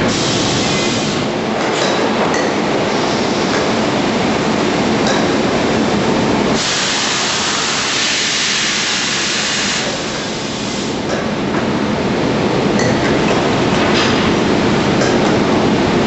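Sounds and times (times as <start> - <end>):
loud hiss: 6.6 - 11.0.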